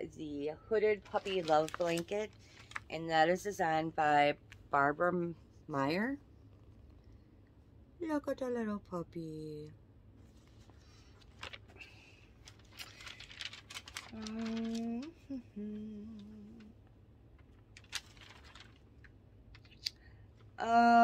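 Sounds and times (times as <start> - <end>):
magazine pages rustling: 0.8 - 3.0, 10.3 - 15.2, 17.3 - 20.0
woman humming: 14.1 - 16.8.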